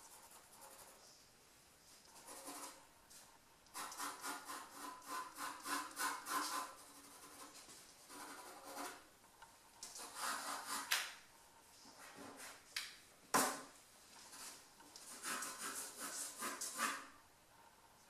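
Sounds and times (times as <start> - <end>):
pencil scratching on paper: 0.0 - 1.1, 2.1 - 2.8, 3.7 - 9.1, 10.0 - 11.0, 14.3 - 17.2.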